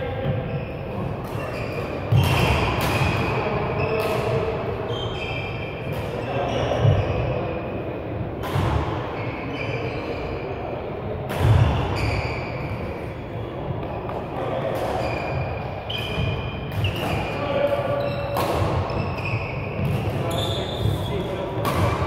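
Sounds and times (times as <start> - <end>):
shoes squeaking on court floor: 0.1 - 7.6, 9.0 - 10.6, 11.4 - 22.0
racket striking shuttlecock: 2.1 - 3.4, 15.9 - 19.0, 21.5 - 22.0.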